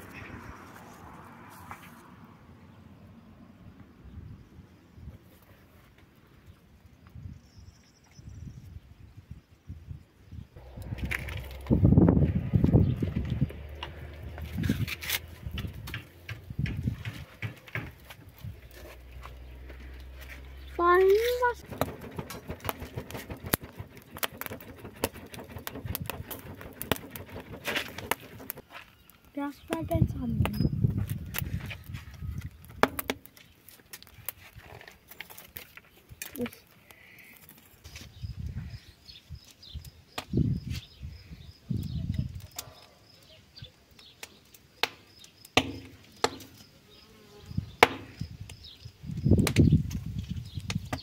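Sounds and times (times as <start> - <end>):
charcoal crackling and popping: 10.6 - 40.8, 42.0 - 46.9, 47.6 - 51.0
card fanning a grill: 20.8 - 28.7.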